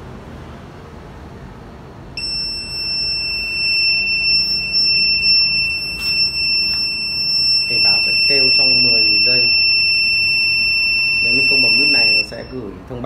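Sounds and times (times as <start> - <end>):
high-pitched buzzer alarm tone: 2.2 - 12.6.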